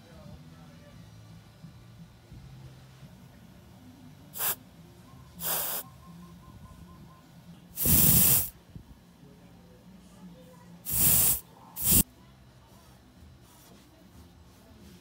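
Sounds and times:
air hissing from valve stem: 4.4 - 4.6, 5.4 - 5.8, 7.8 - 8.5, 10.9 - 12.0.

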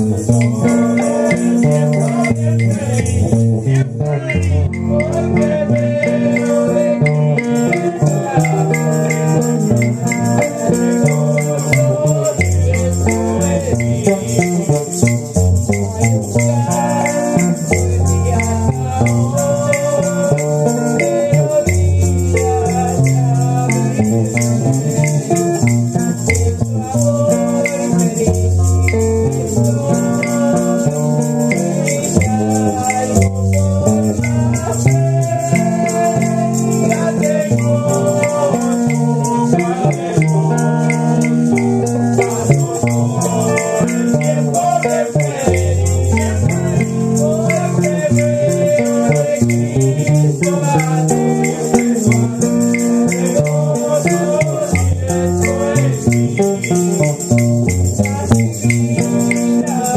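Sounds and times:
shaker rattle: 0.0 - 3.4, 4.7 - 59.9
electric guitar: 0.0 - 59.9
bass line: 31.5 - 39.6.

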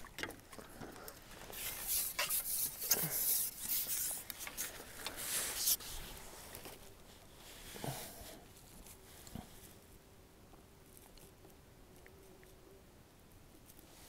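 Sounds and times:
net rustling and rubbing: 1.3 - 7.9.

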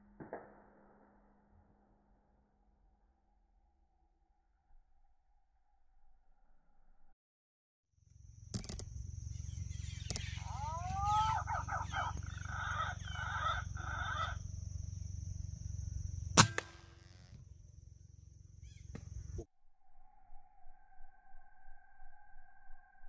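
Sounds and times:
thin high whine: 8.3 - 18.3
bird calls: 8.6 - 16.0, 18.6 - 19.4
air rifle shot: 16.4 - 17.1.

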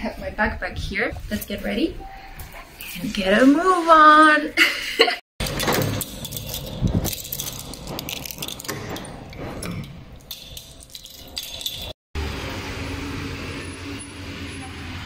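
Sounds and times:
front door opening: 5.4 - 12.0
keys jangling in door lock: 5.4 - 12.0
street traffic noise: 5.4 - 15.0.

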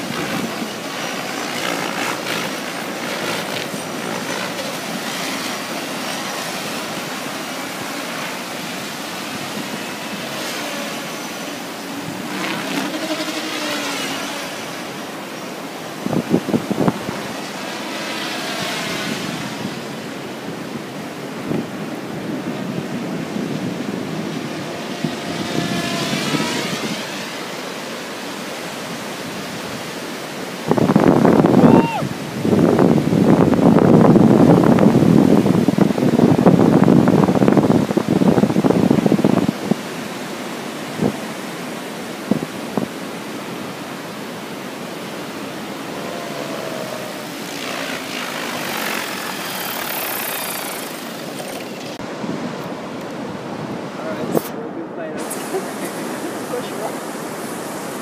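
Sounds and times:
model helicopter rotor whine: 0.0 - 20.3, 24.2 - 30.0, 45.2 - 52.0
surf: 0.0 - 58.0
wind on microphone: 0.0 - 58.0.

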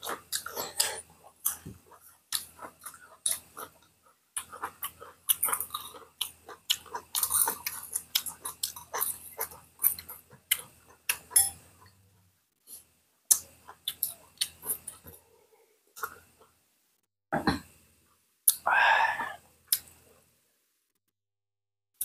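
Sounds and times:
wet chewing and lip-smacking: 0.0 - 12.0, 13.3 - 15.2, 19.7 - 20.0.

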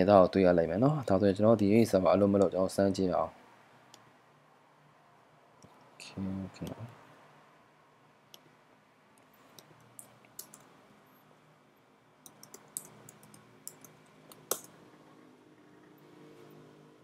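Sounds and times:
faint keyboard clicks: 9.5 - 10.7, 12.2 - 14.8.

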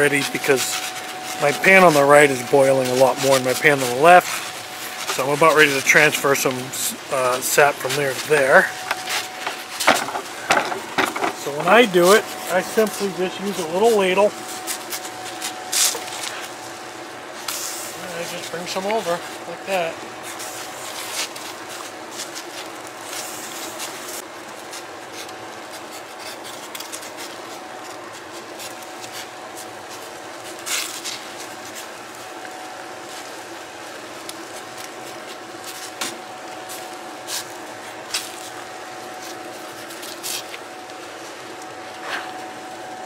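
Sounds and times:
sap boiling with rushing hiss: 0.0 - 43.0.

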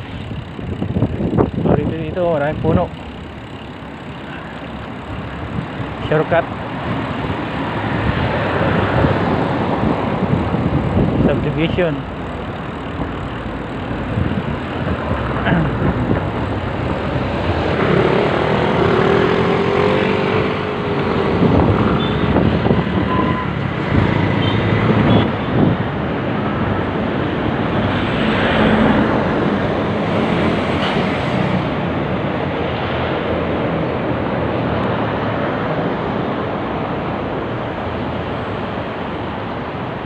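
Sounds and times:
wind noise on microphone: 0.0 - 2.8, 6.6 - 11.8, 13.8 - 40.0
road traffic rumble: 0.0 - 40.0
wavering engine tone: 17.9 - 23.6.

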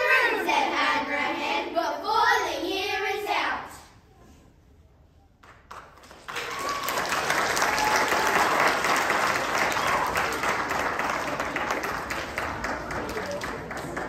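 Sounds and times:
audience applauding: 5.4 - 14.0.

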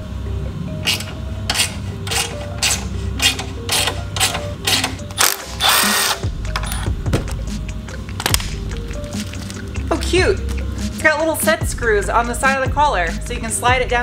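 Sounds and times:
power tool running: 0.8 - 6.9
ratcheting clicks: 0.8 - 7.4.

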